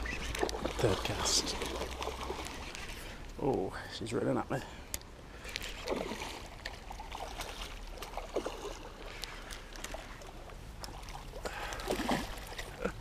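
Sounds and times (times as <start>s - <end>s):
fish splashing at water surface: 5.4s - 12.9s.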